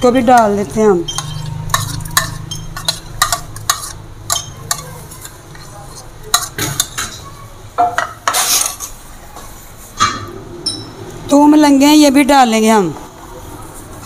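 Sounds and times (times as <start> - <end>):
metal spoon clinking on bowl: 0.3 - 5.4.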